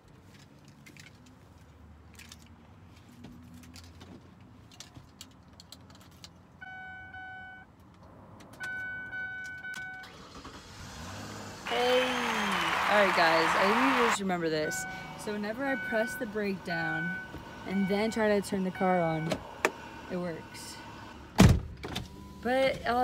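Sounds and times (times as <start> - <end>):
car keys jangling and clicking: 0.1 - 1.4, 4.6 - 6.5.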